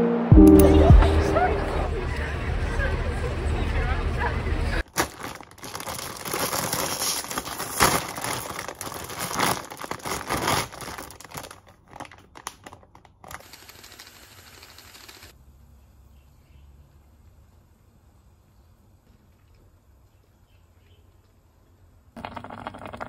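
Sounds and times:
plastic wrapping rustling: 4.8s - 13.4s.

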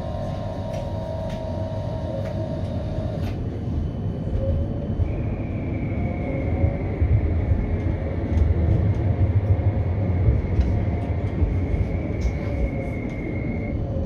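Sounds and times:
tram motor whine: 0.0s - 14.0s
tram rumbling on track: 0.0s - 14.0s.

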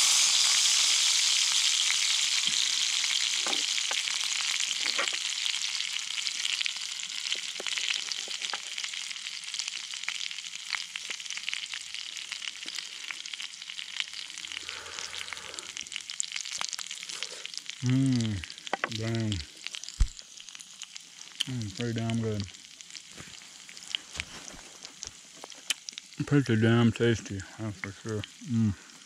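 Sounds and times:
onions sizzling in a skillet: 0.0s - 26.7s, 27.3s - 29.0s
small clicks and pops: 3.4s - 5.4s, 7.3s - 9.0s, 23.8s - 26.1s.

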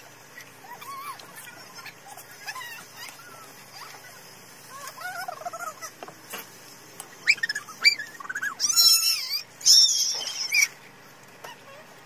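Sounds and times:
high-pitched animal calls: 0.4s - 6.0s, 7.2s - 10.8s.

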